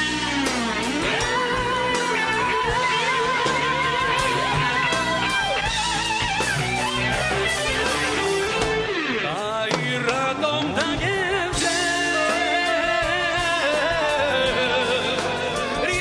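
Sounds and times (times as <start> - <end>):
bass: 0.0 - 16.0
drums: 0.0 - 16.0
lead electric guitar: 0.0 - 16.0.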